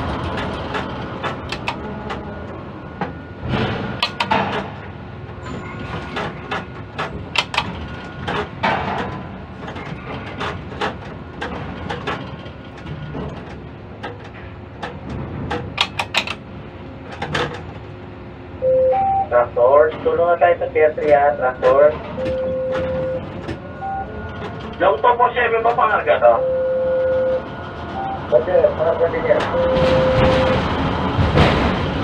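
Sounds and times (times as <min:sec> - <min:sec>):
crane machinery hum: 0:00.0 - 0:32.0
sharp clicks and knocks: 0:00.2 - 0:02.2, 0:03.0 - 0:04.9, 0:05.9 - 0:16.4, 0:17.1 - 0:17.9.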